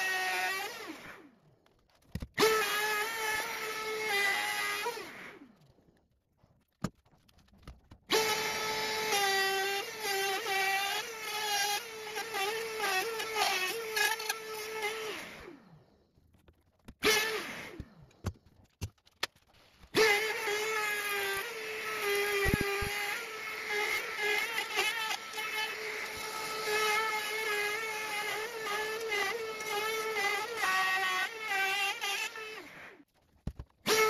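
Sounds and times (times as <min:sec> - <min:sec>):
router motor whining: 0:00.0 - 0:01.3, 0:02.3 - 0:05.6, 0:08.1 - 0:16.0, 0:16.9 - 0:18.3, 0:19.9 - 0:33.0.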